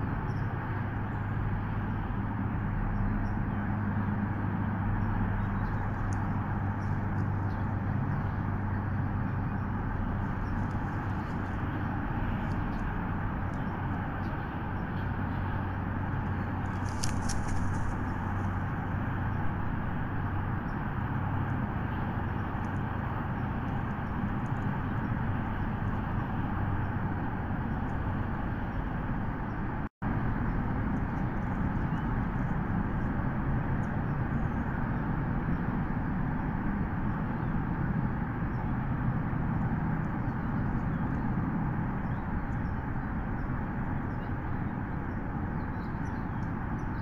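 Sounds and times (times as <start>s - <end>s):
ambient hum and hiss: 0.0s - 47.0s
distant road traffic rumble: 0.0s - 47.0s
low electrical hum: 0.0s - 47.0s
faint high crackles: 16.6s - 18.6s.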